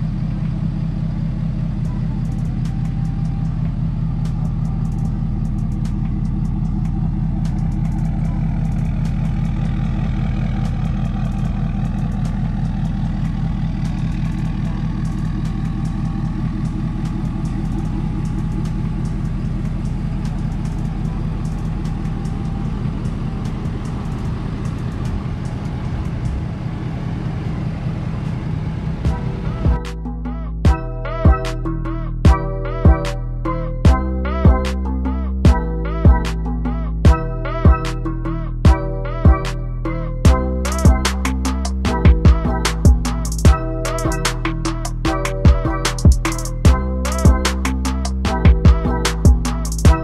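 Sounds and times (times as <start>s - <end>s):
diesel truck engine idling: 0.0s - 50.0s.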